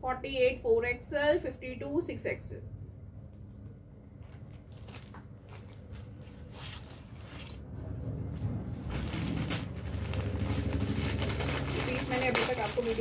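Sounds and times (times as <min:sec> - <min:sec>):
steady low hum: 0:00.0 - 0:13.0
cloth garments rustling: 0:04.1 - 0:07.7, 0:08.3 - 0:13.0.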